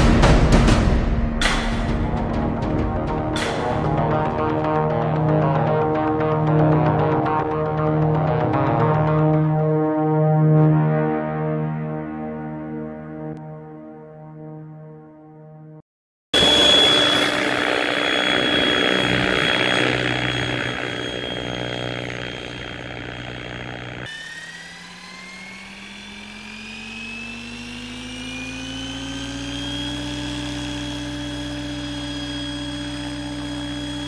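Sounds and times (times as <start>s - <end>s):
rc helicopter motor whine: 16.4s - 34.0s.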